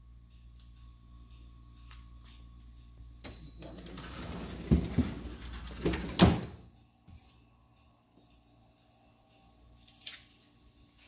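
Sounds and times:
freezer drawer sliding on rails: 3.6 - 6.6.

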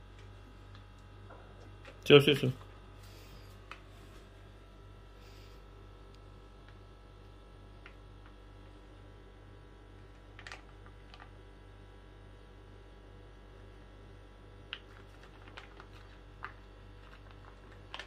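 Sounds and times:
steady low hum: 0.0 - 18.0
plastic pouch squeezed crinkling: 14.7 - 18.0.

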